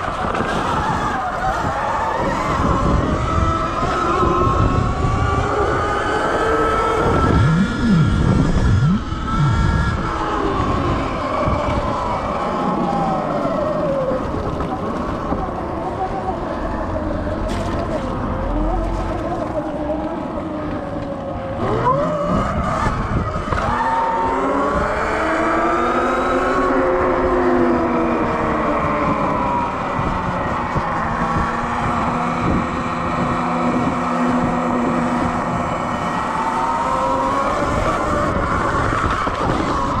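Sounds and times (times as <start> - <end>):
ground rumble: 0.0 - 21.6
electric motor whining: 0.0 - 40.0
wind: 0.0 - 40.0.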